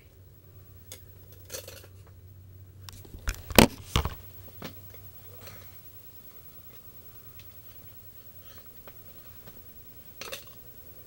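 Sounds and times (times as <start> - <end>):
steady low hum: 0.0 - 11.0
sharp clicks and knocks: 2.9 - 4.2.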